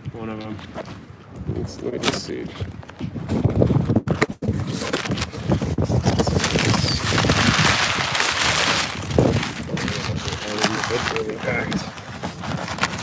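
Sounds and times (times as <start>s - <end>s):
packing paper rustling: 4.6s - 13.0s
cardboard box pulled open: 6.2s - 13.0s.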